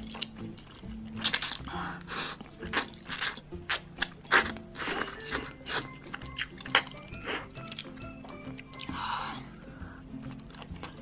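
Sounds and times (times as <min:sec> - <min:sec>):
chewing: 0:00.0 - 0:11.0
slurping noodles: 0:01.1 - 0:08.1.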